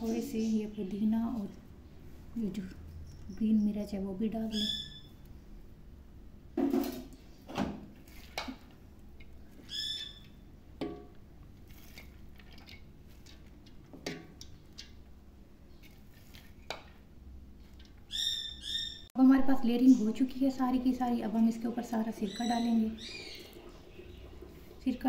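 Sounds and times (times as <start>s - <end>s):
bird squawk: 4.5s - 5.1s, 9.6s - 10.4s, 18.1s - 19.1s.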